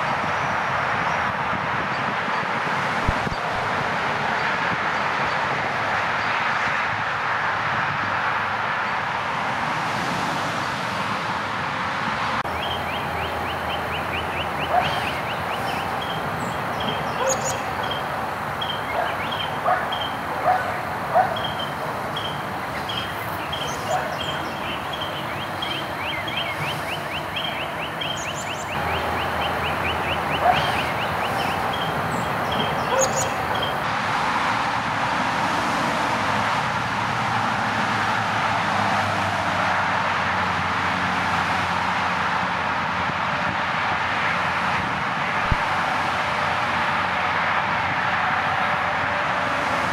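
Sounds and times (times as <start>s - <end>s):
distant traffic hum: 0.0s - 49.9s
bird chirping: 12.5s - 33.8s.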